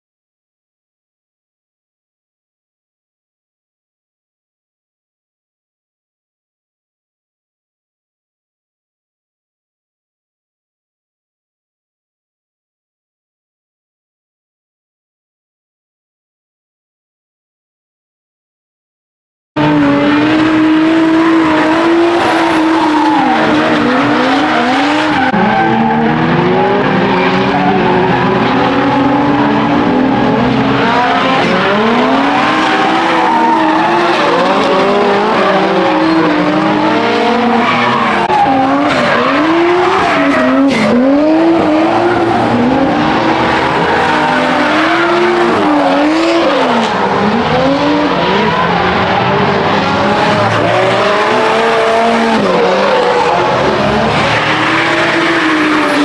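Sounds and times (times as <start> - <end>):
car engines revving: 19.6 - 56.0.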